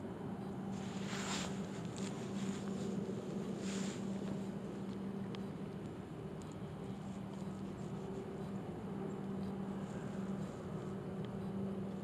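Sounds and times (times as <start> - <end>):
faint low hum: 0.0 - 12.0
soft ticks: 4.2 - 12.0.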